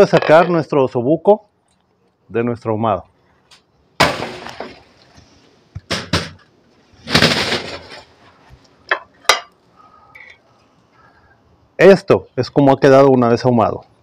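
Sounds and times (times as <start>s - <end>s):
metal scraping rattle: 7.0s - 8.1s.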